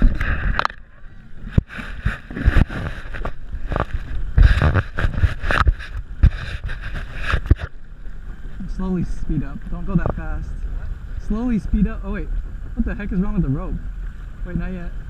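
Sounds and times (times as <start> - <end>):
wake churning: 0.0 - 12.9
motorboat engine running: 0.0 - 15.0
low thumps on microphone: 1.4 - 7.8.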